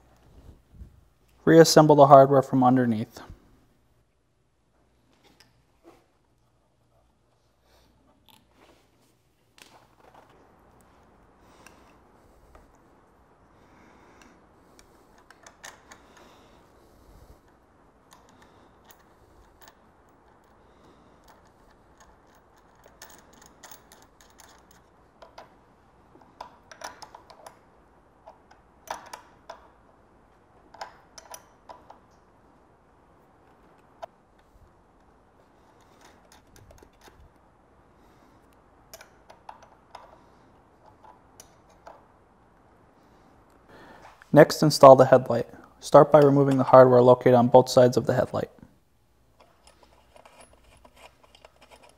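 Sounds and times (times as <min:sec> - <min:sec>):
metallic clicks of small bolts: 0:21.2 - 0:25.6, 0:26.2 - 0:27.6, 0:28.2 - 0:29.8, 0:30.7 - 0:32.2, 0:38.9 - 0:40.2.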